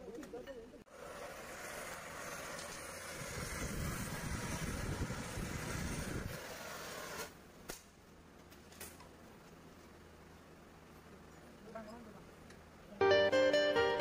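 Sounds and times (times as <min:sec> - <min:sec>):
cutting torch hissing: 0:00.9 - 0:07.4.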